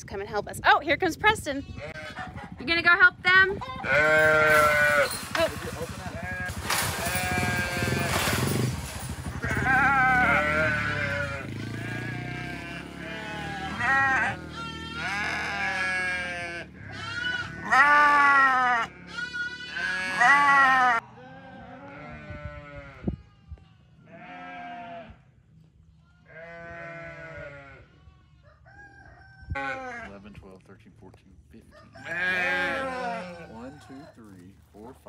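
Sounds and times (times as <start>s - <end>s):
sheep and lambs bleating: 1.5s - 2.6s, 3.5s - 8.5s, 9.4s - 28.6s, 29.5s - 30.1s, 31.9s - 34.4s
low engine hum: 5.2s - 17.5s.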